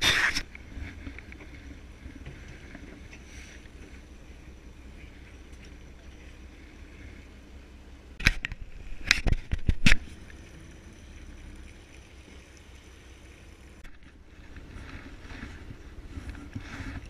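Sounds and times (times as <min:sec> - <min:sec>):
boat engine rumble: 0:00.0 - 0:17.0
wind: 0:00.0 - 0:17.0.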